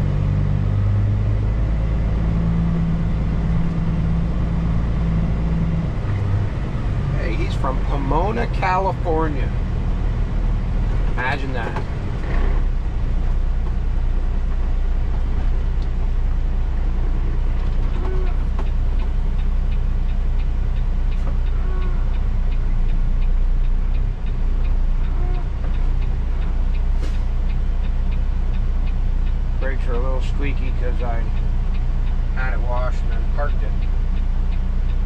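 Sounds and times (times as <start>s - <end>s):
diesel truck engine drone: 0.0s - 35.0s
faint steady ticking: 1.3s - 35.0s
short squeaks: 17.8s - 18.6s.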